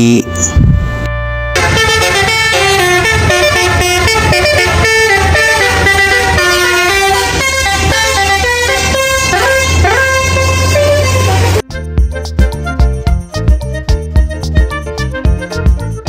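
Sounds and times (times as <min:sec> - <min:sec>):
musical bus air horn: 0:00.2 - 0:11.7.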